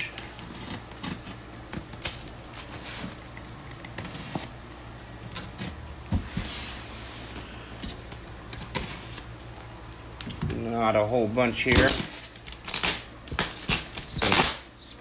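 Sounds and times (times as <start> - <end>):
styrofoam scraping and squeaking: 0.0 - 3.2
box cutter slitting tape: 11.7 - 14.6.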